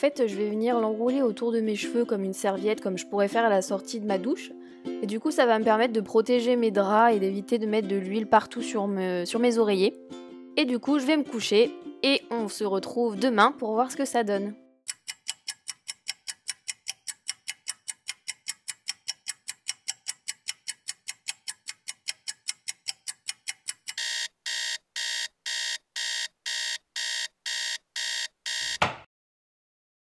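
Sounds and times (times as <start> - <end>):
clock ticking fast: 14.9 - 28.8
alarm clock beeping: 14.9 - 29.0.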